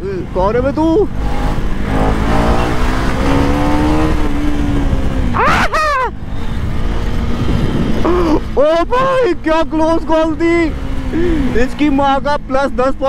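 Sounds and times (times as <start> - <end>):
motorcycle engine revving: 0.0 - 13.0
person shouting: 5.3 - 6.2.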